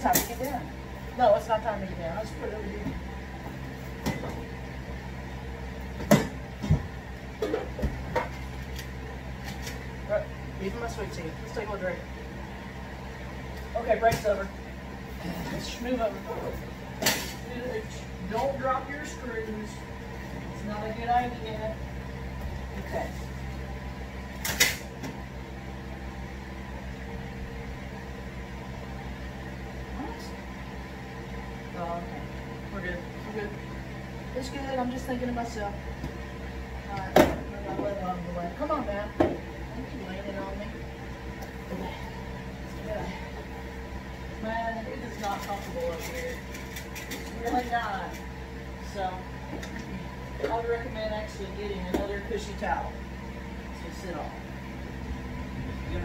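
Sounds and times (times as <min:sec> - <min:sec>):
steady low hum: 0:00.0 - 0:56.0
items knocking on a dryer: 0:06.0 - 0:08.4, 0:39.2 - 0:39.5.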